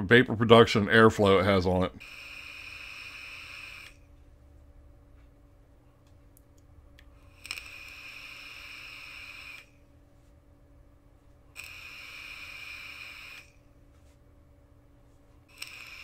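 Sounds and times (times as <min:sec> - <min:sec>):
air hissing through vape airflow: 0:02.0 - 0:04.0, 0:07.2 - 0:09.7, 0:11.6 - 0:13.6, 0:15.5 - 0:16.0.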